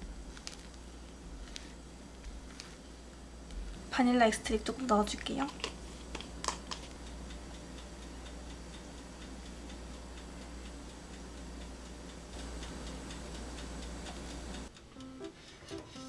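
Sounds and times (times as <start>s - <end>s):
low steady hum: 0.0s - 16.0s
light ticking: 6.4s - 16.0s.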